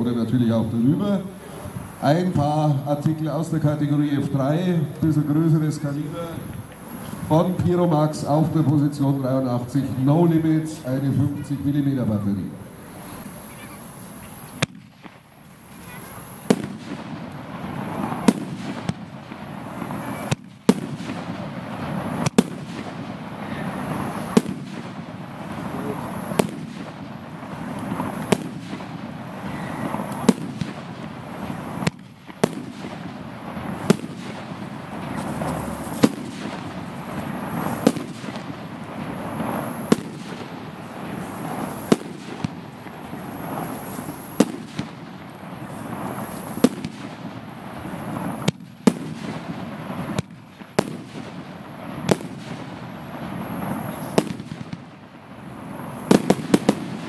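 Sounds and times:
firework bangs with rumble: 14.6 - 15.2, 16.4 - 54.9, 56.0 - 57.0.

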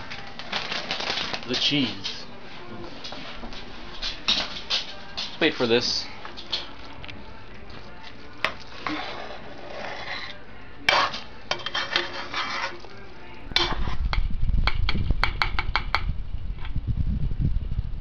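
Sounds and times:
fork scraping a saucepan: 8.5 - 12.9, 13.5 - 14.0
low rumble: 13.4 - 18.0.

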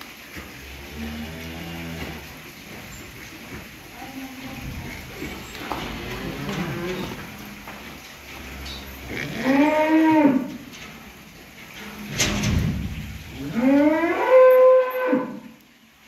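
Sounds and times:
cow mooing: 0.8 - 2.3, 4.2 - 7.6, 8.4 - 10.7, 13.3 - 15.6.

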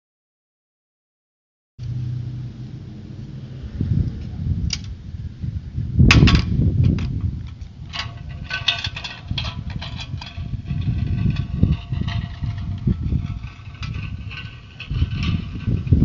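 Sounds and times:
small hard wheels rolling on asphalt: 6.8 - 16.0
metal frame rattling: 7.8 - 16.0.

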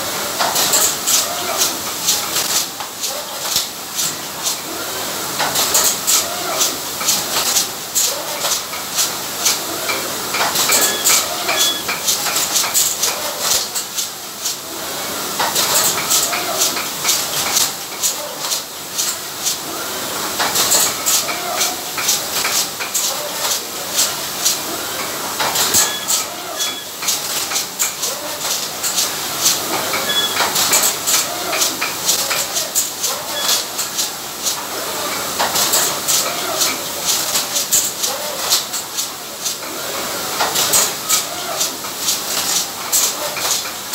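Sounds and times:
constant machine hiss: 0.0 - 43.9.

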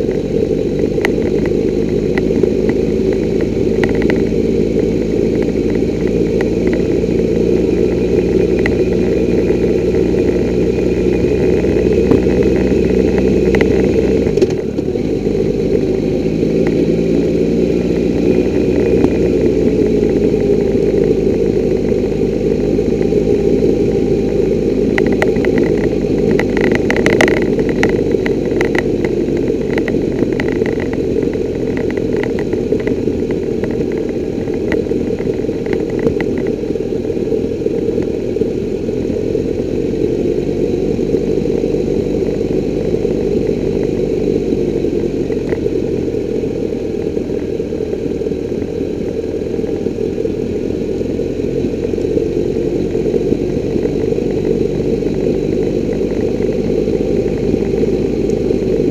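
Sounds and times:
gravel pinging under tyres: 0.0 - 58.9
motorcycle engine running: 0.0 - 58.9
road rumble: 0.0 - 58.9.

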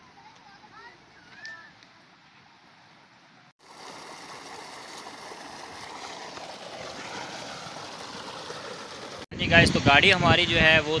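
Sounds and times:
water gushing into a tank: 3.6 - 9.3.

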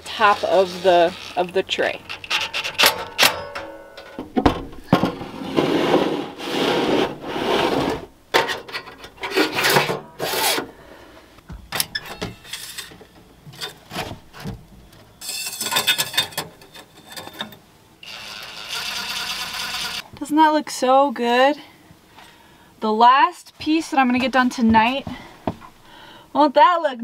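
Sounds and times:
sheet metal scraping: 0.0 - 4.2, 4.9 - 10.7.

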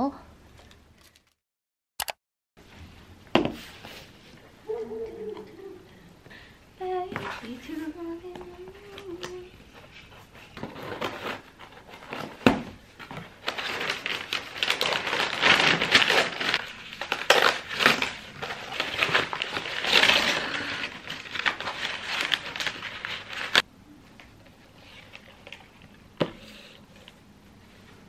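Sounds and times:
packing paper crinkling: 13.0 - 23.6.

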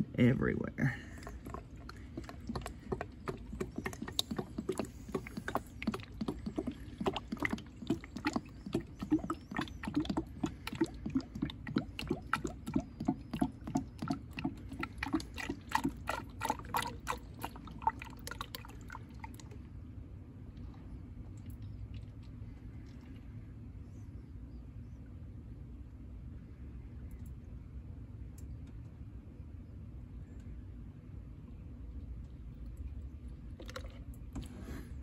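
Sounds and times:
fluid glugging into a funnel: 0.0 - 19.9, 20.5 - 23.6, 32.3 - 35.0.

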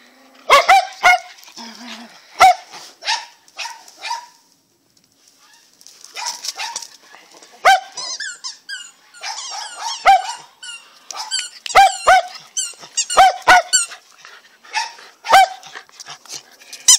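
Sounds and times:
squeaky ball squeaks: 8.0 - 13.9.

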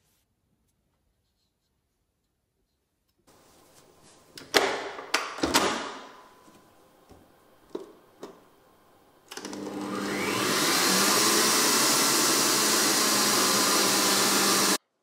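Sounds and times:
stand mixer motor whirring: 9.4 - 14.8.

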